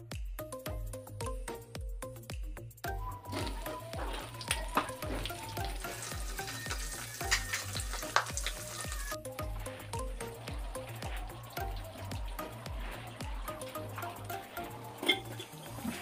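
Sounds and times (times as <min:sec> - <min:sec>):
background music with beat: 0:00.0 - 0:16.0
fish sizzling in hot oil: 0:03.3 - 0:16.0.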